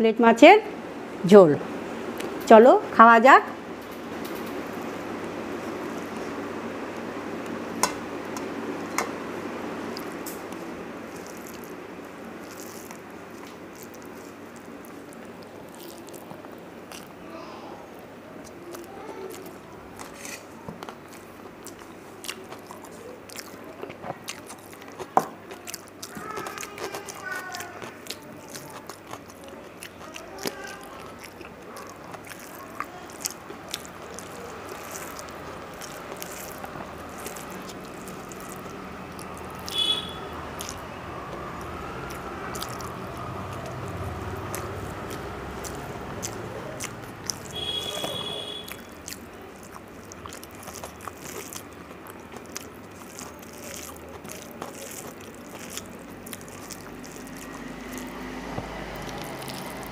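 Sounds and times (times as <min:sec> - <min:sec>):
person chewing: 0:04.2 - 0:59.9
fingers mixing rice on steel plate: 0:07.4 - 0:09.2, 0:19.0 - 0:59.9.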